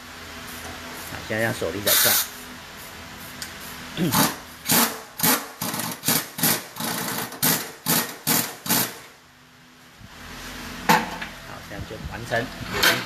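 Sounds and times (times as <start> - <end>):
pneumatic impact wrench bursts: 1.9 - 2.4, 4.0 - 9.1.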